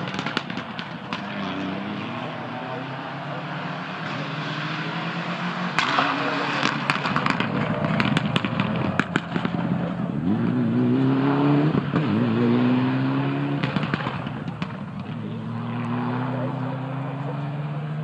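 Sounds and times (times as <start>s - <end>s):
exhaust crackles and pops: 0.0s - 2.4s, 5.7s - 10.5s, 13.4s - 16.5s
rally car engine accelerating: 0.0s - 18.0s.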